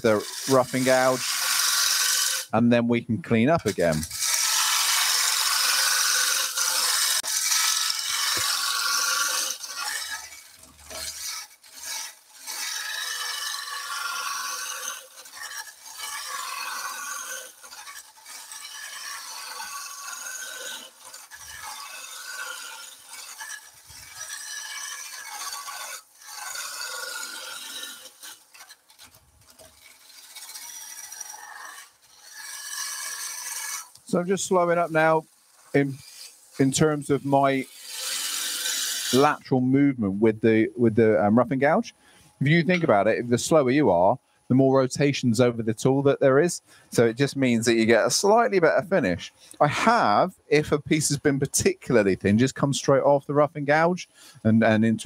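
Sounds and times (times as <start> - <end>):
gouge cutting wood on a lathe: 0.0 - 2.6, 3.5 - 39.6.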